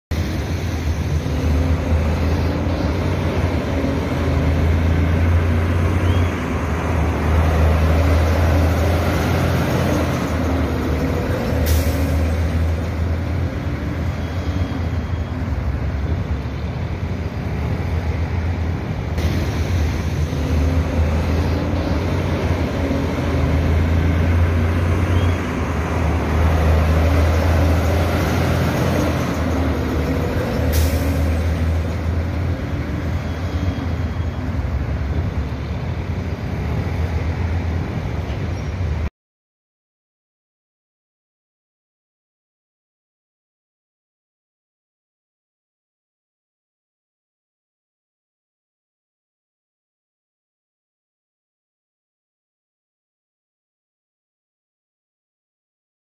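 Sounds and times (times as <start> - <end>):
truck diesel engine under throttle: 19.3 - 35.4.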